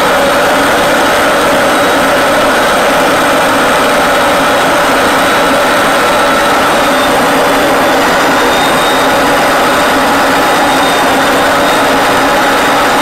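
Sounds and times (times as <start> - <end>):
jet engine rushing hum: 0.0 - 13.0
faint high whines: 4.8 - 13.0.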